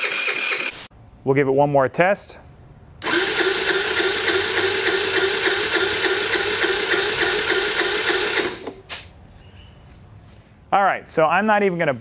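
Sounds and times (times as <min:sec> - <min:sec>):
scooter starter cranking engine: 0:00.0 - 0:00.7, 0:03.0 - 0:08.8.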